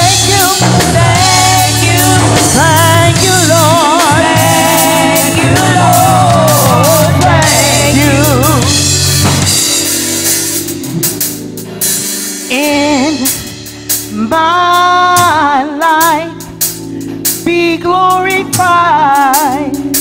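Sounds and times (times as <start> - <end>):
women singing gospel: 0.0 - 9.4
amplified band with drums: 0.0 - 20.0.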